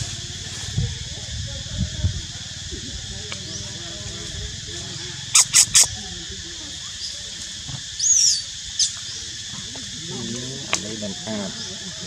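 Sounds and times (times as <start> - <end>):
insects droning: 0.0 - 12.0
animal chirps: 5.2 - 6.0, 8.0 - 9.1
animal squeal: 5.3 - 6.0.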